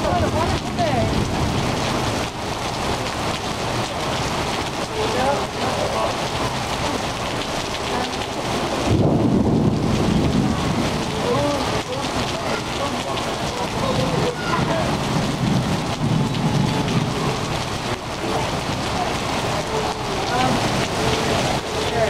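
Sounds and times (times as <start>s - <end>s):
heavy rain on paving: 0.0s - 22.0s
deep low rumble: 8.8s - 11.1s.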